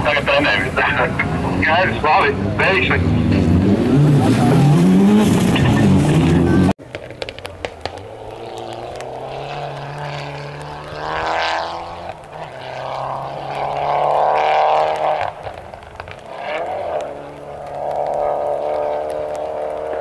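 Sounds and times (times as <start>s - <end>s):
distant rally car engine revving: 0.0s - 20.0s.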